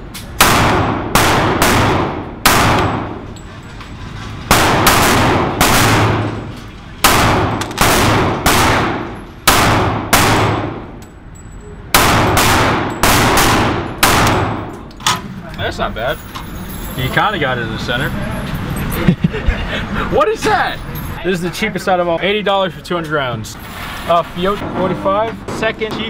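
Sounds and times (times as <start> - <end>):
pistol shots echoing indoors: 0.4 - 3.2, 4.5 - 11.0, 11.9 - 14.8.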